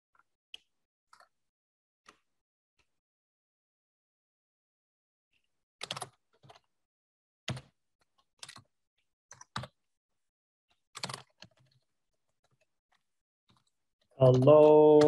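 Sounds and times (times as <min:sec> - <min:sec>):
typing on a keyboard: 0:05.8 - 0:06.7, 0:08.4 - 0:08.7, 0:09.3 - 0:09.8, 0:10.9 - 0:12.7.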